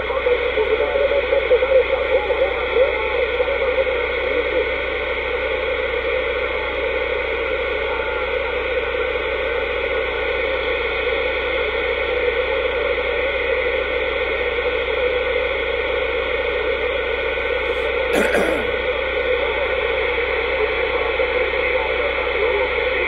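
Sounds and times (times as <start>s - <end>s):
radio static hiss: 0.0s - 4.6s.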